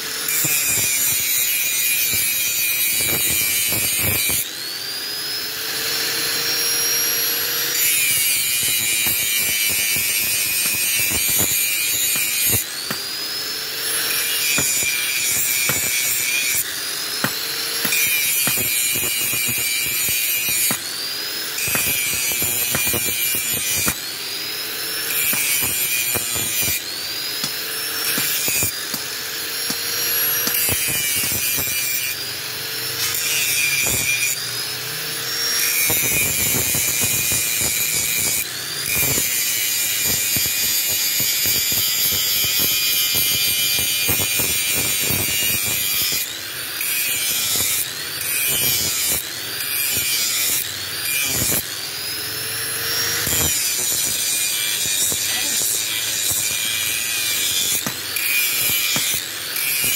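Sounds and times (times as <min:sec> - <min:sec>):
angle grinder grinding steel: 0:00.0 - 0:59.9.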